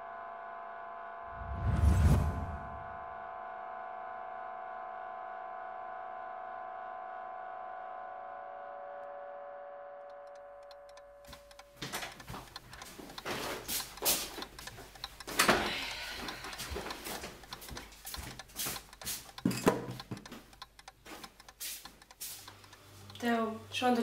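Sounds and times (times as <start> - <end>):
sustained musical chord: 2.8 - 11.2
alarm clock ticking: 10.1 - 24.0.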